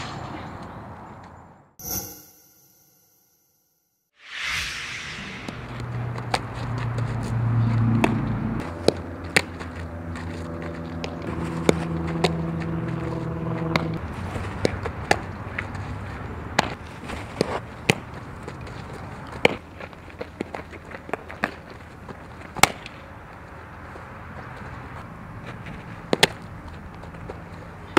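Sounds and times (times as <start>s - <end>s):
balls hit and caught: 16.5s - 18.7s, 22.5s - 23.0s, 26.0s - 26.5s.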